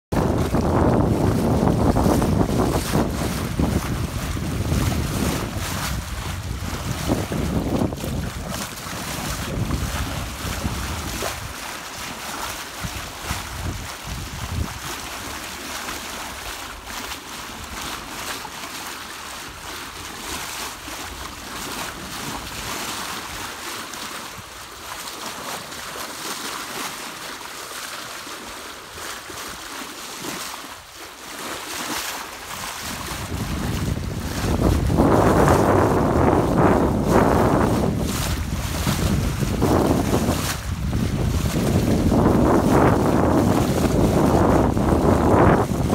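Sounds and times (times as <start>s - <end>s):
wind buffeting microphone: 0.1s - 18.0s, 32.5s - 45.9s
water splashing along boat hull: 0.1s - 45.9s.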